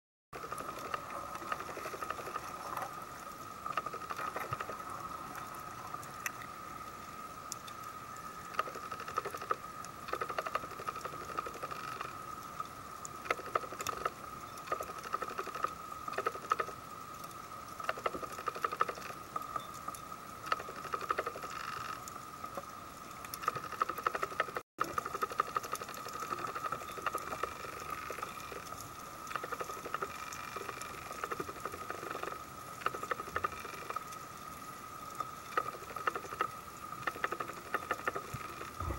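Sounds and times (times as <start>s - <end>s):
underwater crackling: 0.4s - 6.4s, 8.4s - 12.5s, 23.3s - 38.9s
steady faint underwater tone: 0.4s - 38.9s
scattered clicks: 35.5s - 38.9s.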